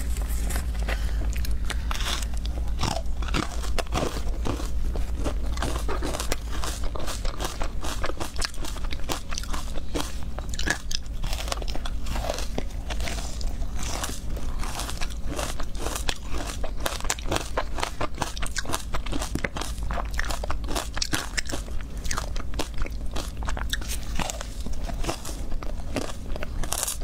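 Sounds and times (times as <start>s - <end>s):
low hum: 0.0s - 17.3s
ice crunching being chewed: 0.0s - 27.0s.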